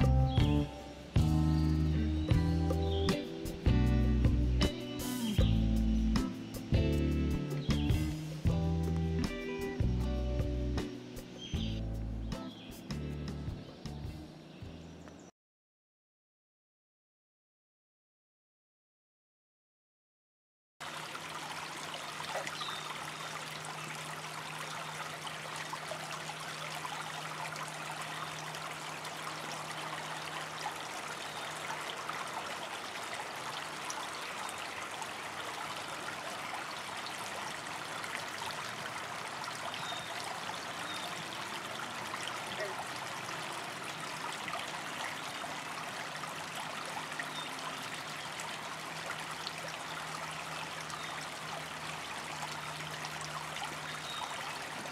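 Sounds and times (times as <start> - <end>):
creek water babbling over rocks: 20.8 - 54.9.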